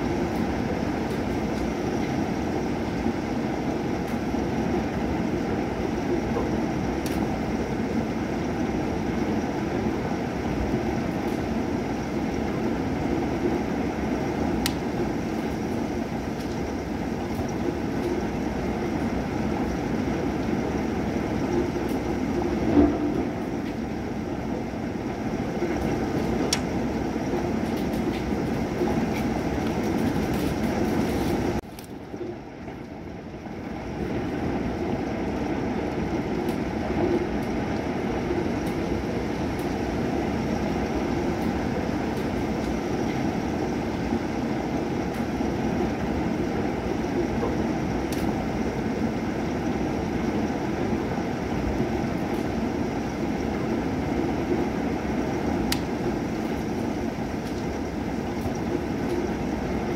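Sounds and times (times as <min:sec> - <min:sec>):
rain falling steadily: 0:00.0 - 0:59.9
raindrops ticking: 0:55.6 - 0:59.4.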